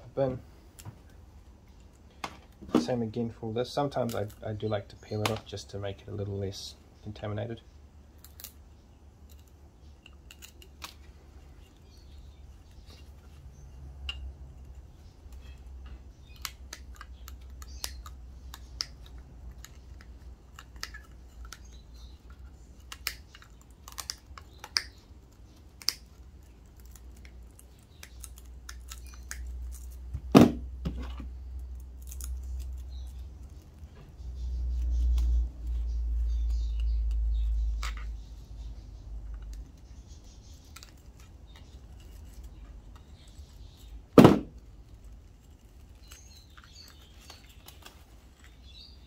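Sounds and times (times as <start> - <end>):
loud knock: 30.3 - 31.0, 44.2 - 44.5.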